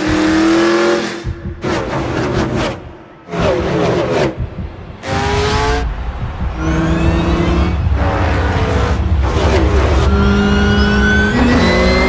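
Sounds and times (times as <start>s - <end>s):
racing car engines accelerating: 0.0s - 12.0s.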